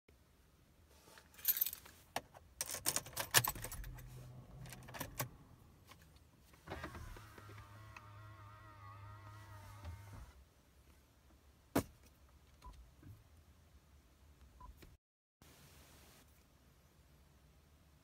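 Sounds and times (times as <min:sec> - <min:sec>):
car keys jangling: 0:02.6 - 0:05.4.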